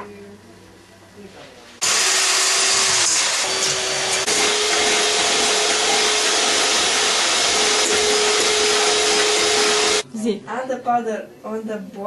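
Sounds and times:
electric hand mixer whirring: 1.8s - 10.0s.

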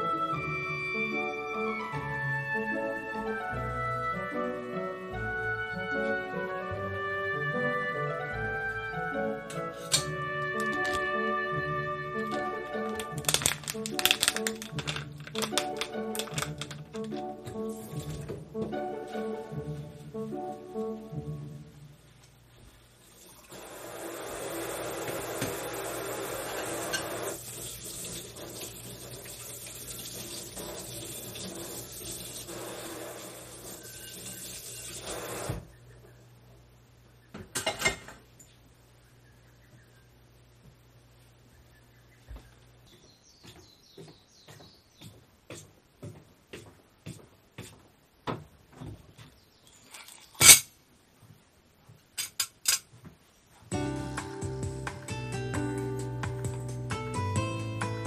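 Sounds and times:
bird chirping: 35.7s - 37.5s, 38.8s - 40.5s, 41.3s - 45.2s
footsteps on wooden deck: 42.2s - 49.5s.

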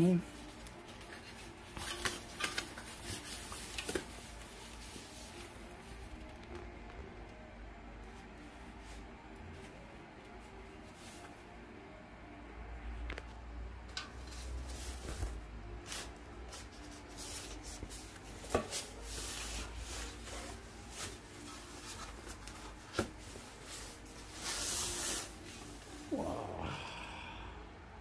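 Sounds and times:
fabric bag rustling: 18.8s - 26.1s.

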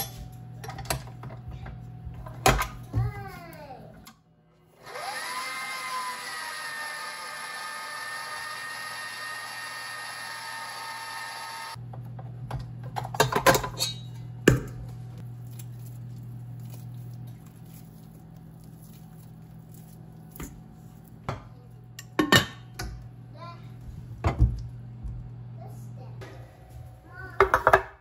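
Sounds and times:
stand mixer motor whining: 4.8s - 11.8s.

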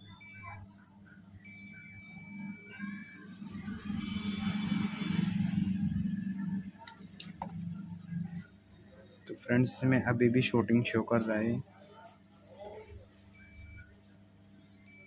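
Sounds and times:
multimeter beeping: 0.0s - 0.7s, 1.4s - 5.6s, 13.3s - 13.9s.

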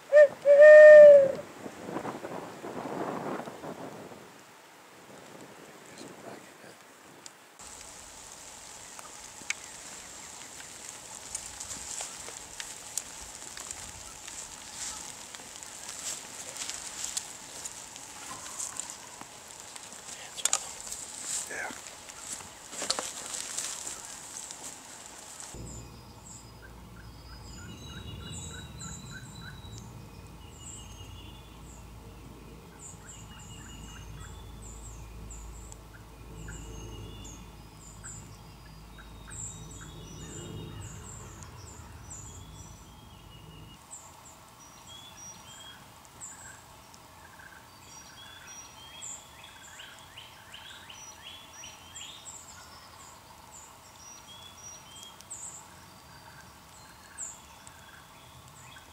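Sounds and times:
songbirds chirping: 5.8s - 58.9s
low microphone rumble: 25.6s - 43.8s.

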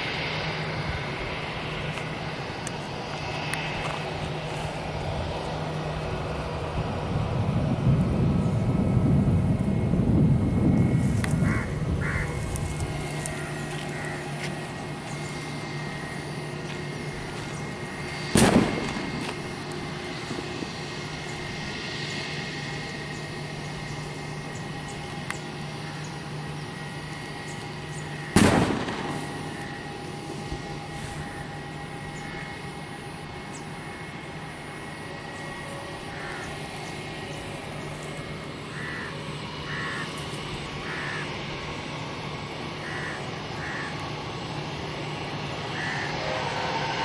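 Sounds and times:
loud rumble: 0.0s - 43.8s
jet engines humming with whine: 0.0s - 47.0s
loud sharp bangs with echo: 18.3s - 19.3s, 28.3s - 29.5s.

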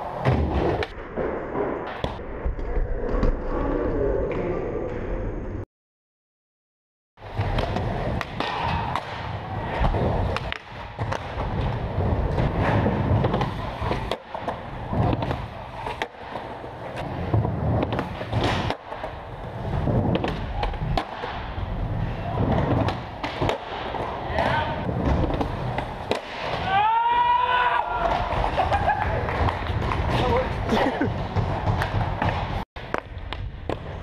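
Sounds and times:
skateboard clacks and landings: 7.2s - 26.7s, 27.9s - 34.0s
skateboard wheels rolling: 7.2s - 34.0s.

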